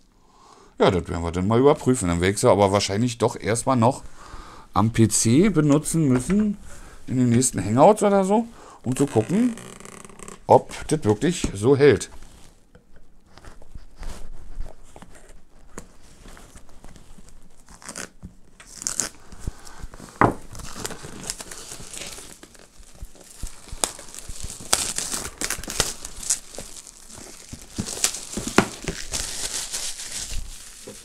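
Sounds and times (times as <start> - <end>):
plastic shrink-wrap crinkling: 15.1 - 31.0.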